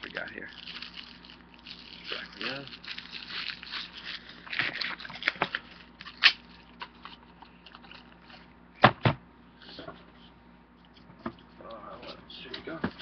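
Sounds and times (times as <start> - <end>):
packaging crinkling: 0.0 - 8.4.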